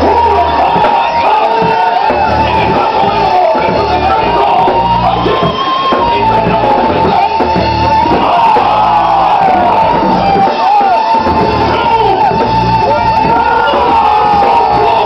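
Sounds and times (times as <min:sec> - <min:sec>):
loud rock music: 0:00.0 - 0:15.0
people shouting: 0:00.0 - 0:15.0.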